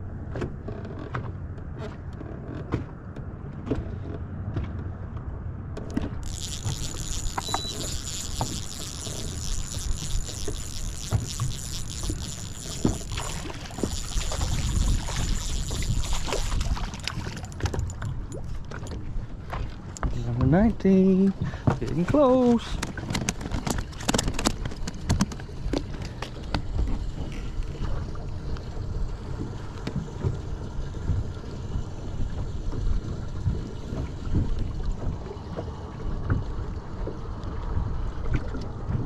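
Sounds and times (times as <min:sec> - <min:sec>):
water lapping against boat hull: 0:00.0 - 0:39.0
small knocks and ticks: 0:00.3 - 0:20.6.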